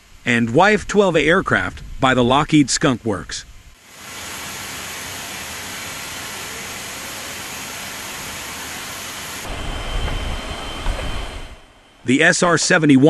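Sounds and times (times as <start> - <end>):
jet engine deep rumble: 3.4 - 12.6
jet engine rushing hiss: 3.8 - 12.7.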